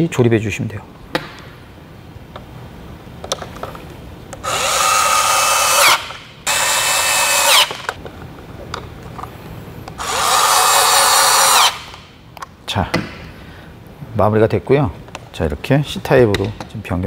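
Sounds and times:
electric screwdriver whirring: 4.4s - 8.0s, 10.0s - 12.0s.

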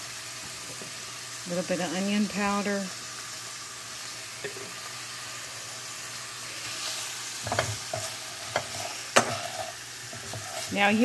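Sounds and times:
food sizzling in oil: 0.0s - 11.0s
spatula scraping a pan: 6.6s - 11.0s.

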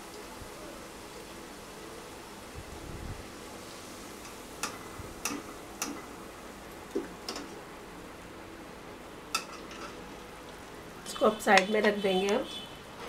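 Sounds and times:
faint steady hiss: 0.0s - 13.0s.

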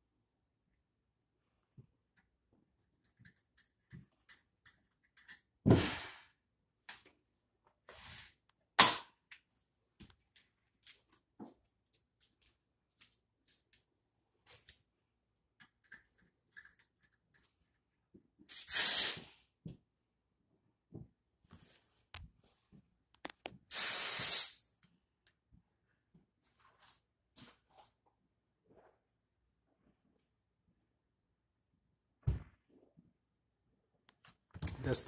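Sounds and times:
tools clicking and knocking: 3.0s - 5.5s
hiss: 18.5s - 19.4s, 23.7s - 24.7s.

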